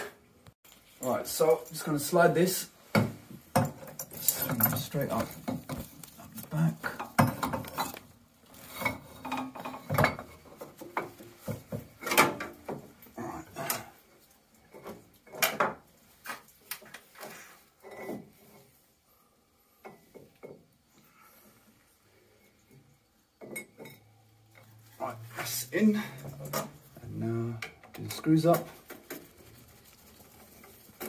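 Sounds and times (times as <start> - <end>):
metal knocks clinks and scrapes: 2.8 - 14.0, 14.6 - 18.8, 22.4 - 31.0.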